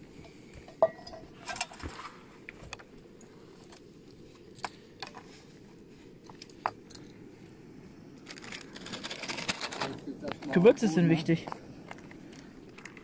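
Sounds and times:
rustling: 8.2 - 10.6.

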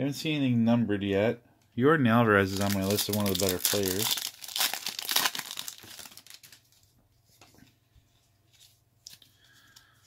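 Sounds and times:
wrapper crinkling and tearing: 2.4 - 6.8.

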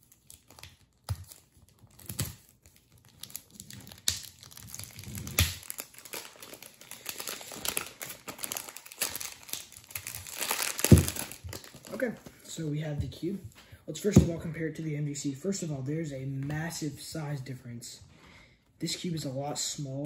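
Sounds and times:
plastic wrap crinkling: 0.0 - 12.4.

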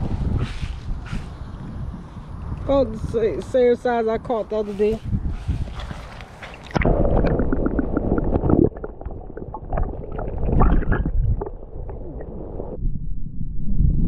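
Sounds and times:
underwater sloshing and gurgling: 5.2 - 12.8
small clicks and bubble pops: 6.6 - 12.2.

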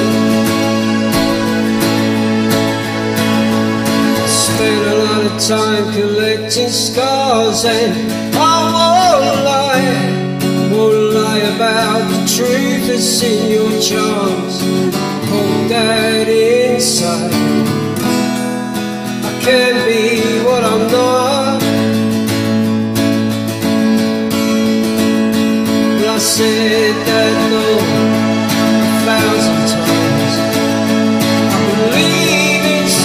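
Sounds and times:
person singing with vibrato: 0.0 - 17.7, 25.2 - 33.0
acoustic guitar chords: 0.0 - 33.0.

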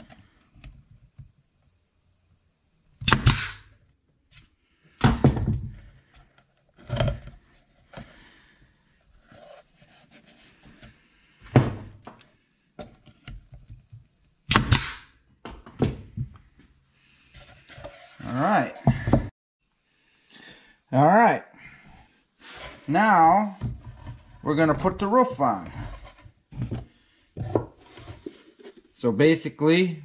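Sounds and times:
air hiss: 3.0 - 3.7
nail gun shots: 3.0 - 3.7, 14.5 - 15.1.

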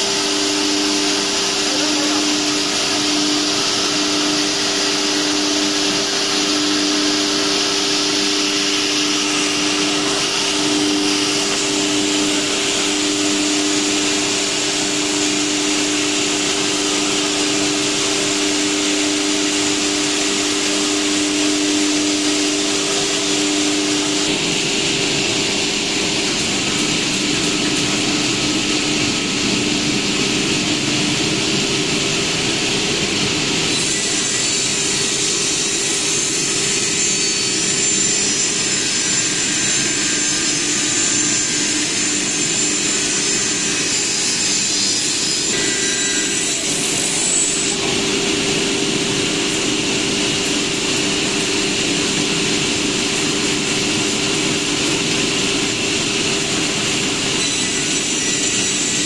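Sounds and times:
saw blade cutting wood: 33.6 - 48.0, 57.3 - 59.0.

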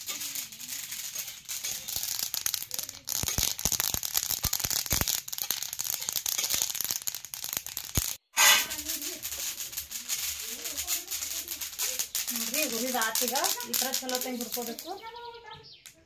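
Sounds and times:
spatula scraping rice in pan: 0.0 - 2.1, 5.9 - 6.6, 8.3 - 12.8.

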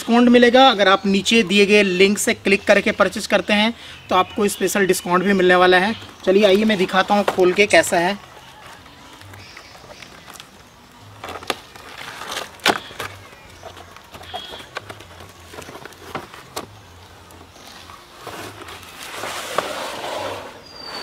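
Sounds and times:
cardboard rustling: 5.7 - 21.0
cardboard flaps knocking and scraping: 11.2 - 16.8.

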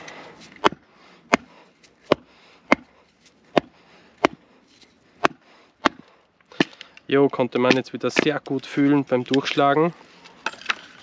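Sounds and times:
wooden baton striking machete: 0.5 - 1.5, 2.1 - 2.9, 3.5 - 4.4, 5.2 - 6.8, 7.5 - 8.5.

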